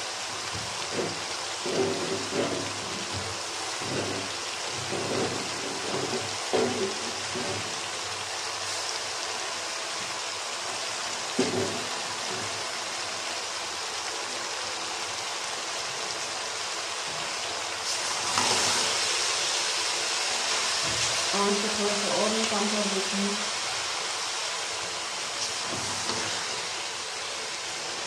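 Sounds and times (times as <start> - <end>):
food sizzling in a pot: 0.0 - 28.0
knock: 4.8 - 7.6, 11.4 - 12.5.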